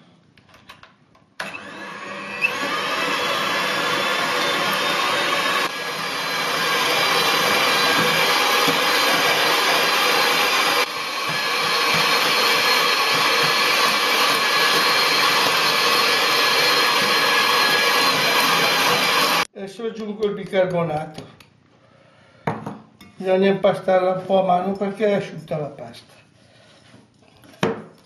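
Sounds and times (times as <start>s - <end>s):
electric hand mixer churning dough: 1.4s - 19.5s.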